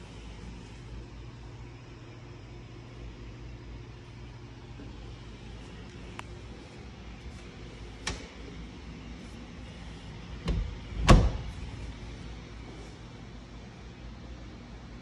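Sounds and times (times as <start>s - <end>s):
door thumping shut: 10.4s - 11.6s.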